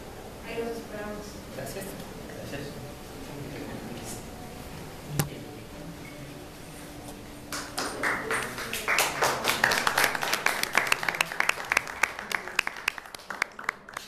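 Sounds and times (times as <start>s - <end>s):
audience clapping: 7.5s - 14.0s.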